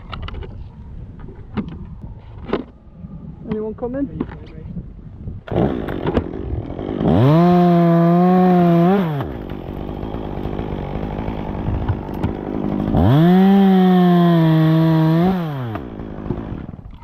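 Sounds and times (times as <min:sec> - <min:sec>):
chainsaw idling: 0:05.5 - 0:16.8
chainsaw revving: 0:05.5 - 0:16.8.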